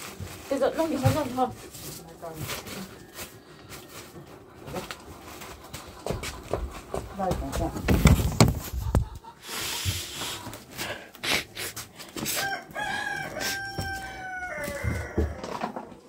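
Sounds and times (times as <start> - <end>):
knocks and rustling: 4.0 - 9.2
rooster crowing: 12.2 - 15.8.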